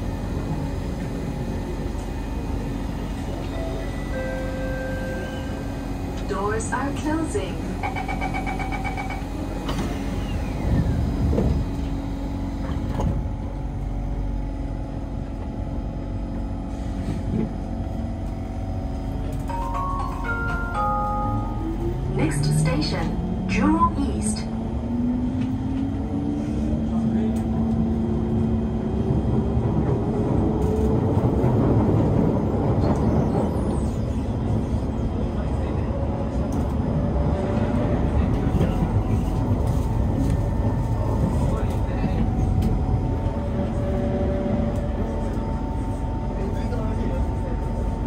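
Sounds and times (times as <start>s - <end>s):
train rumble with motor hum: 0.0s - 48.0s
train door-closing beeps: 3.1s - 11.6s, 19.4s - 24.0s.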